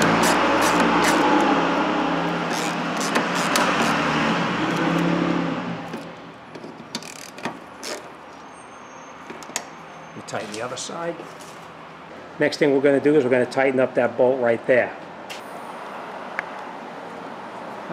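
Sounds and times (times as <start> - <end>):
power ratchet whirring: 0.0 - 1.6, 2.3 - 4.1, 7.0 - 8.1.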